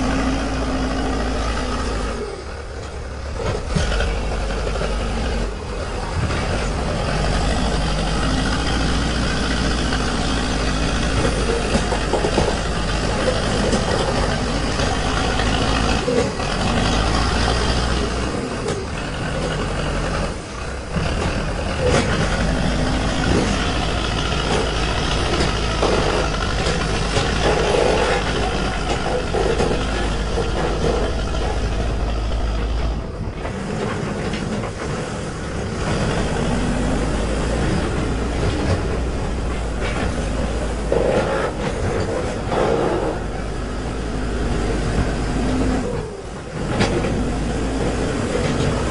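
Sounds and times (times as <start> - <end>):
diesel engine running under load: 0.0 - 48.9.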